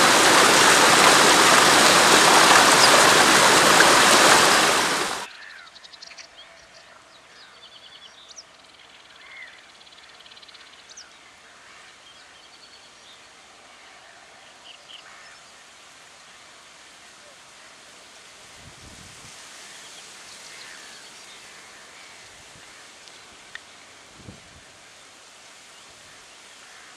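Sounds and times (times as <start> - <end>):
loud rushing noise: 0.0 - 5.3
birds chirping and trilling: 0.1 - 6.8.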